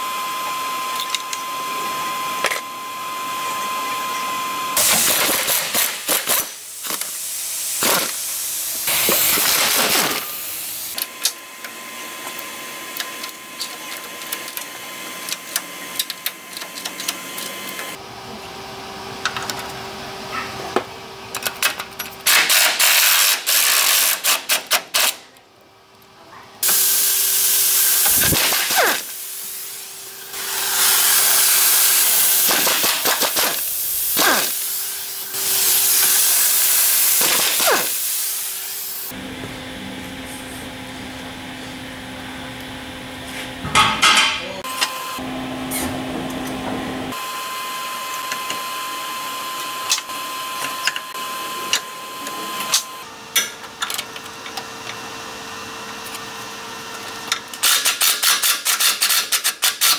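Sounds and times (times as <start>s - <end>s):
air tool exhaust hissing: 4.8s - 11.0s, 26.6s - 39.1s.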